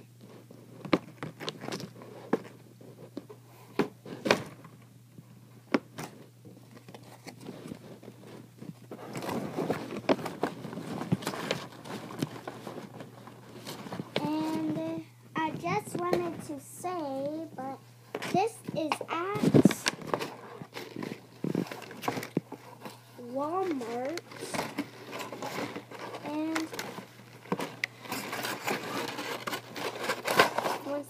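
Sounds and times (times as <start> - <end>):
plastic package crackling: 23.8 - 31.0.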